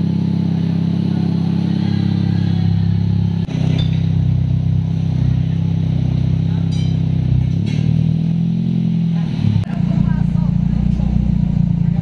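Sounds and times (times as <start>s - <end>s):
car exhaust idling: 0.0s - 12.0s.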